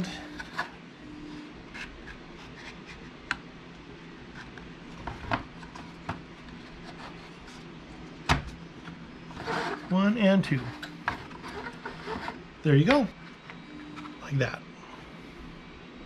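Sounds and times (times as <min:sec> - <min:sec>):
wood rubbing on wood: 0:04.3 - 0:07.7, 0:09.3 - 0:13.2.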